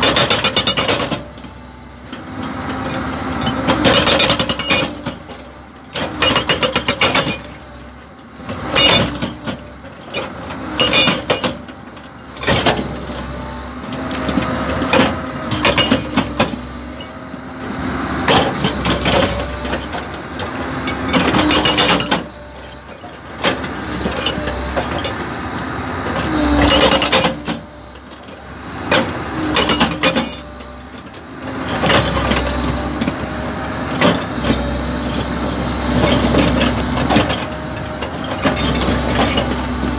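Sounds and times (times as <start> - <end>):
hydraulic breaker hammering rock: 0.0 - 1.4, 3.4 - 5.4, 6.0 - 7.6, 8.5 - 11.7, 14.1 - 17.2, 20.8 - 22.7, 26.2 - 27.7, 28.8 - 30.6
diesel engine running: 0.0 - 39.9.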